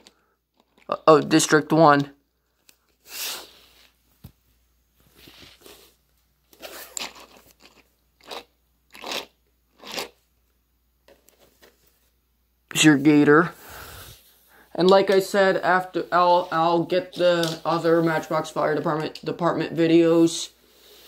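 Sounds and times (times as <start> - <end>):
handling rustling and scraping: 0.0 - 1.4, 2.4 - 8.4, 11.0 - 12.2.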